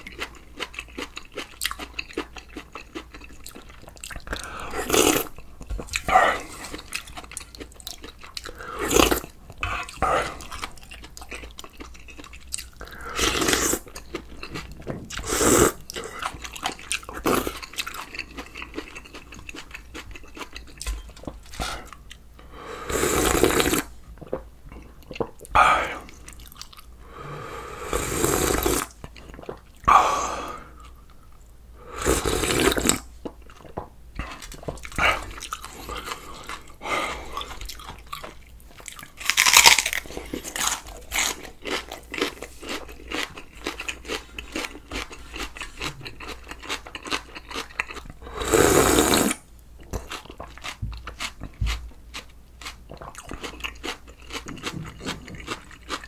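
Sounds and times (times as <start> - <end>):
steady chewing: 0.0 - 22.2, 23.1 - 27.0, 32.4 - 56.0
crunchy food crunching: 32.4 - 48.1, 48.8 - 56.0.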